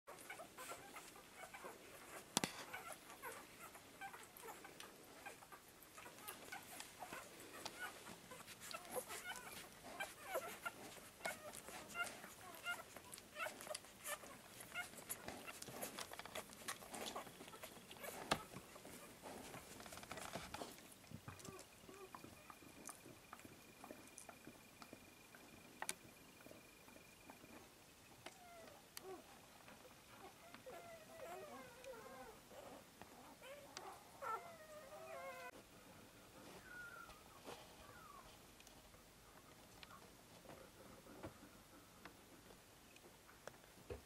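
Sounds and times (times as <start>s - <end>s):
puppies squeaking: 0.1s - 20.7s.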